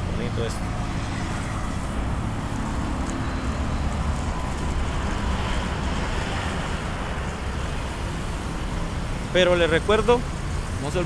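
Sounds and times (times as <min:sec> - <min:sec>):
cars passing: 0:00.0 - 0:11.0.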